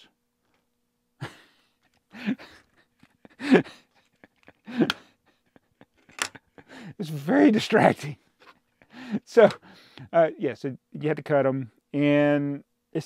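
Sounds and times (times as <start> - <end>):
man chuckling: 1.2 - 9.6.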